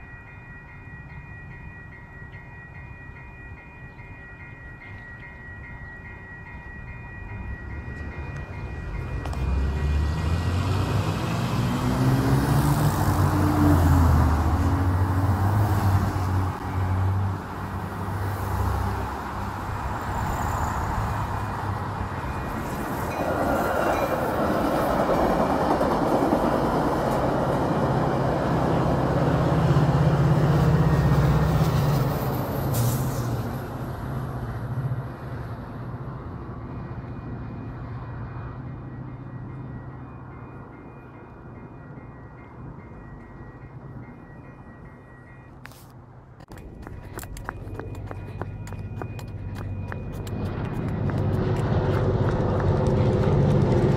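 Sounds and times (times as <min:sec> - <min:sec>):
train passing rumble and hiss: 0:00.0 - 0:46.4, 0:47.0 - 0:53.9
low locomotive drone: 0:00.0 - 0:53.9
vehicle engine: 0:09.0 - 0:22.8, 0:46.4 - 0:53.9.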